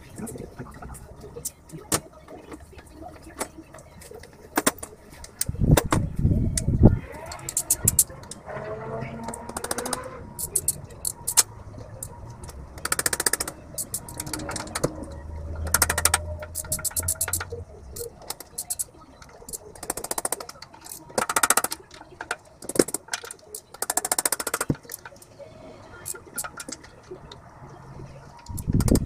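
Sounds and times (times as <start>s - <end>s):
rapid ratchet clicking: 9.2s - 25.2s.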